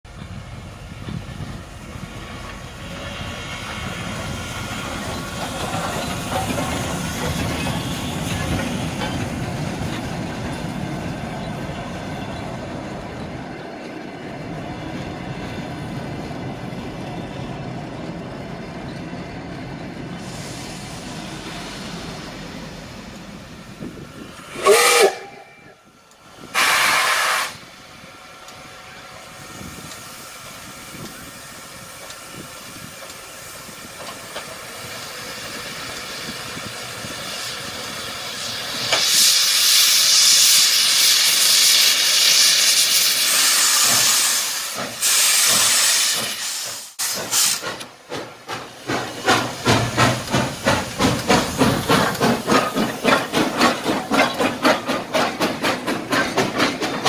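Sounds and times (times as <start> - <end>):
train wheels clattering on rails: 0.1 - 25.3, 29.4 - 57.0
steam hissing: 0.4 - 9.8, 20.1 - 25.7, 26.4 - 57.0
steam whistle: 24.5 - 25.8, 26.5 - 27.6.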